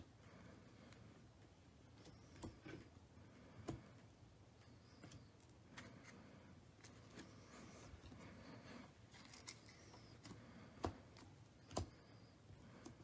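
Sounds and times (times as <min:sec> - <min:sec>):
trading cards rustling in sleeves: 0:06.8 - 0:12.0.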